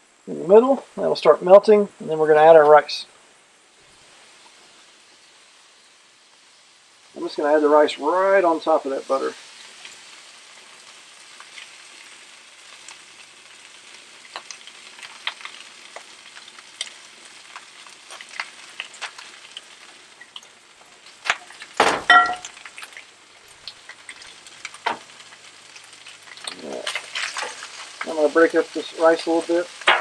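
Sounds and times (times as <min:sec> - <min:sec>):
rice sizzling on a griddle: 0:00.0 - 0:30.0
small crackling pops: 0:09.3 - 0:21.8, 0:22.4 - 0:30.0
loud metal clank: 0:21.8 - 0:22.5.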